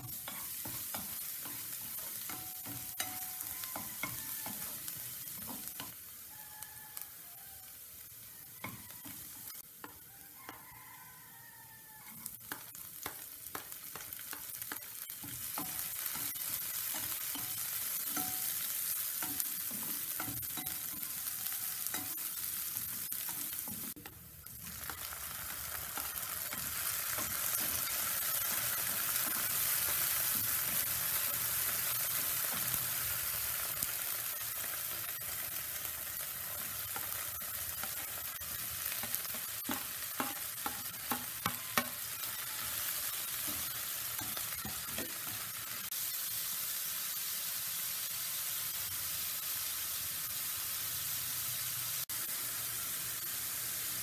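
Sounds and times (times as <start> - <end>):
spoon clicking and scraping pan: 0.0 - 6.0, 12.1 - 24.2, 24.8 - 34.7, 35.3 - 45.8
vegetables sizzling in hot oil: 0.0 - 54.0.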